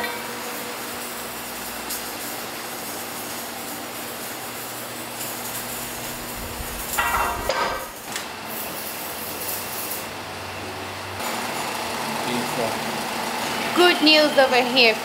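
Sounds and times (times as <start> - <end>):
workshop machine hum: 0.5 - 9.4
metal clanking: 5.8 - 8.1
loud knocks: 6.1 - 8.1.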